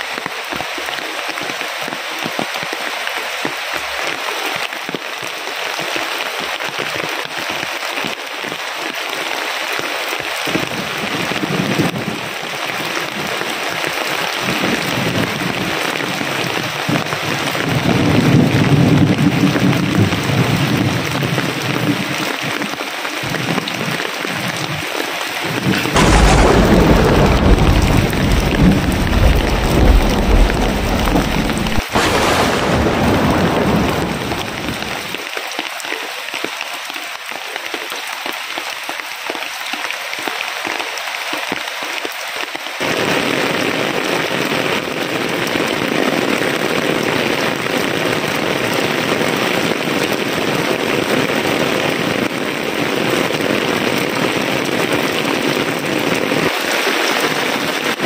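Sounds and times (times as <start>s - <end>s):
heavy rain falling: 0.0s - 58.0s
thunderclap with rumble: 25.4s - 35.2s.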